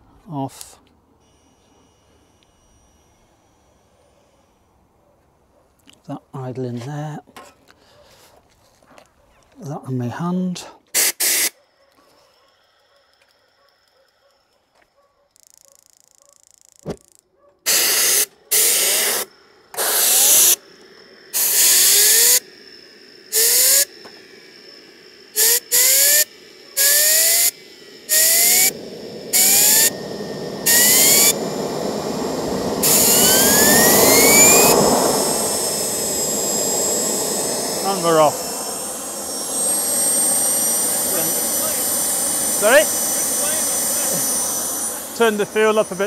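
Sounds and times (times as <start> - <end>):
compressed air hissing blasts: 10.9 - 11.6, 17.7 - 46.0
turbine whine rising: 17.7 - 46.0.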